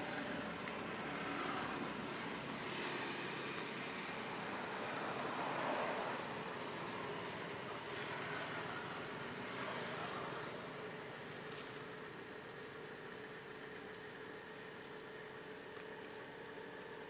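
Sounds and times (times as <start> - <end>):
outdoor background hiss: 0.0 - 17.0
crackle of dry leaves: 9.8 - 16.2.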